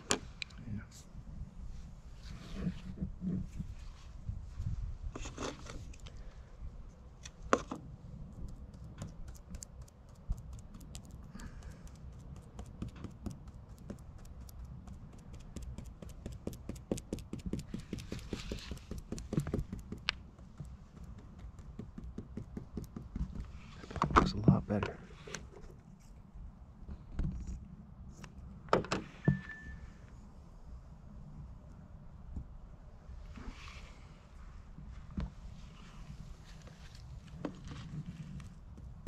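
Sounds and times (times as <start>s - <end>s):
rapid light tapping: 8.3s - 23.5s.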